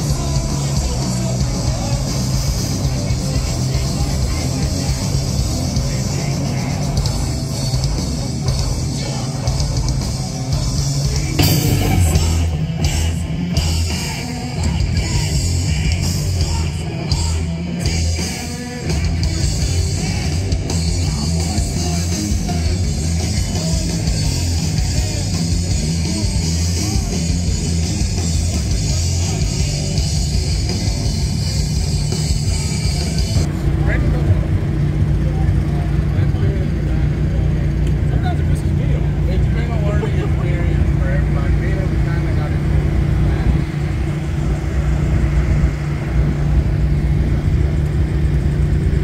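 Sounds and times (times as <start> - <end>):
drum kit: 0.0 - 36.2
distorted electric guitars: 0.0 - 49.0
heavy rock band playing: 0.0 - 49.0.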